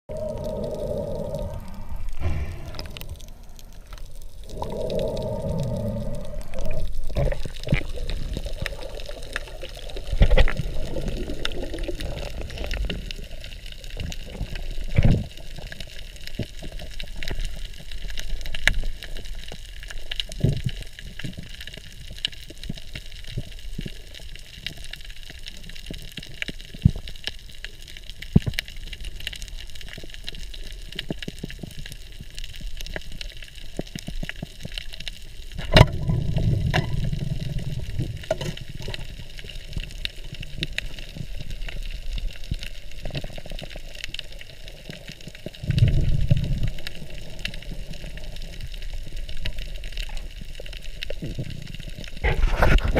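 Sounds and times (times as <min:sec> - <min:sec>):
muffled underwater water rush: 0:00.1 - 0:52.9
underwater clicks and crackles: 0:00.1 - 0:52.9.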